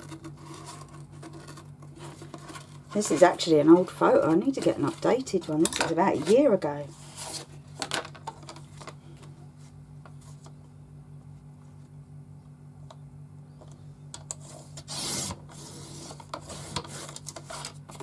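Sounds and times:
trimmer blade cutting paper: 14.4 - 17.7.

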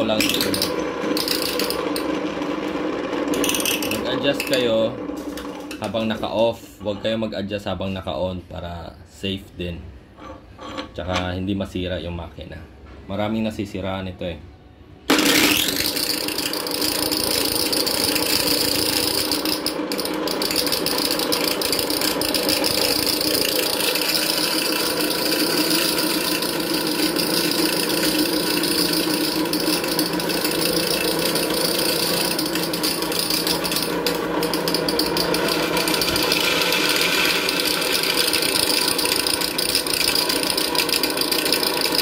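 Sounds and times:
electric grinder grinding corn: 0.0 - 6.0, 15.1 - 42.0.

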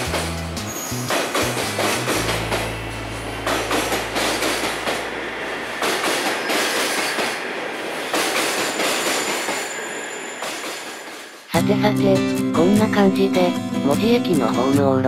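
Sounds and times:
train wheels clattering over rail joints: 0.0 - 11.5
steady low hum: 2.1 - 6.5.

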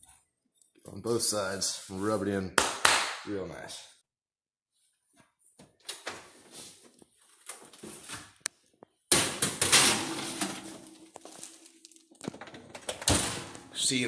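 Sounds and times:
handling noises: 6.2 - 13.8.

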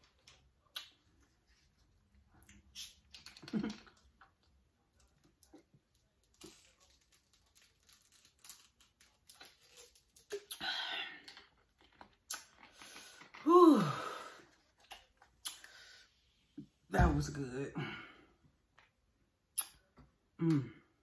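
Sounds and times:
plastic bottle crinkling: 2.6 - 10.6
woman sighing: 13.4 - 14.5.

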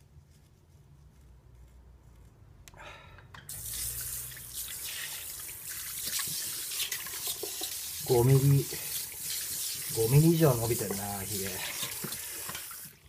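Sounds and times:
water running into sink: 3.5 - 13.0.

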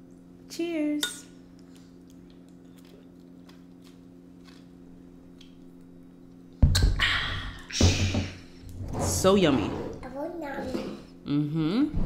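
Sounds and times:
steady low hum: 0.0 - 12.0
chewing and mouth noise: 1.5 - 4.8.

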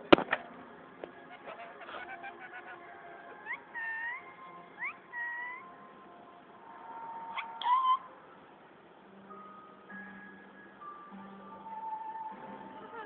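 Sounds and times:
parrot calling: 1.3 - 5.8, 6.8 - 8.2.

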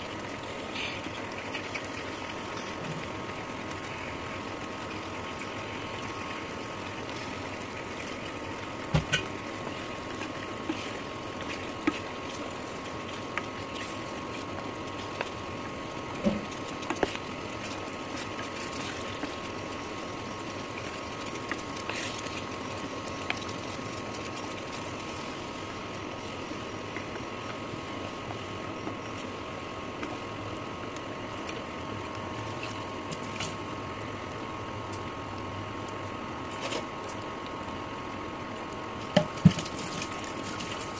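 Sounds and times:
gravy hissing in a pan: 0.0 - 26.9.

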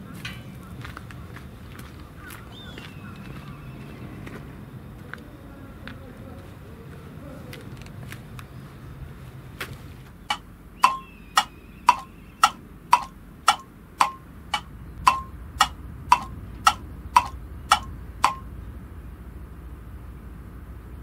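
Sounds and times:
faint scattered clicks: 10.3 - 18.4
sharp ticking knocks: 10.3 - 18.4.

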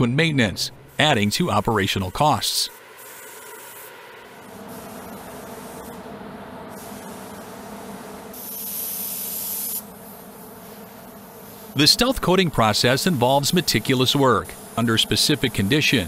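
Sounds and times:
steady background hum: 0.0 - 16.0
paint spray gun hissing: 0.9 - 6.1, 6.7 - 16.0.

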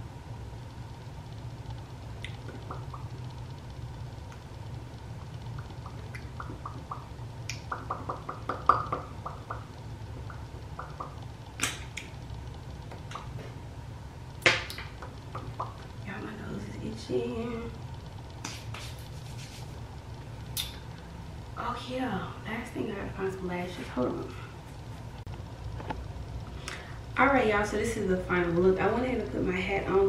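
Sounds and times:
steady low hum: 0.0 - 30.0
lips smacking: 13.0 - 13.4.

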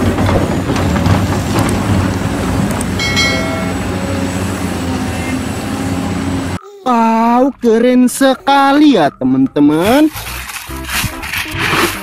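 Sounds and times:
excavator digging clatter: 0.0 - 4.8, 10.1 - 12.0
excavator diesel engine: 0.0 - 6.6.

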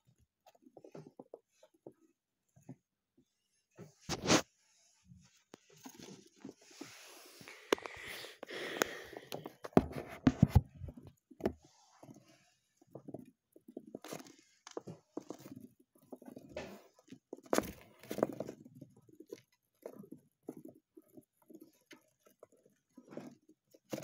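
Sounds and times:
claws scratching on plastic: 4.0 - 4.5.

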